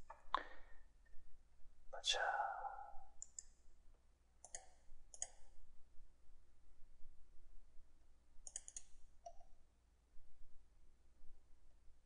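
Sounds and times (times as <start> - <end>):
mouse buttons clicking: 4.4 - 5.5, 8.4 - 9.5.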